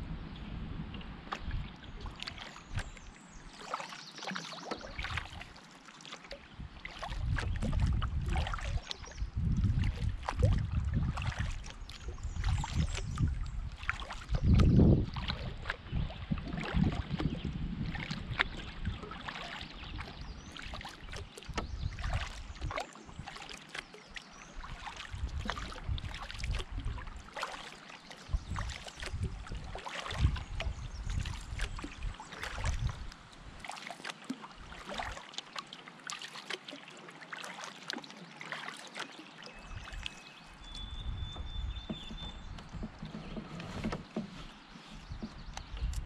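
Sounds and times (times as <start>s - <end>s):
paddle strokes splashing: 1.0s - 46.0s.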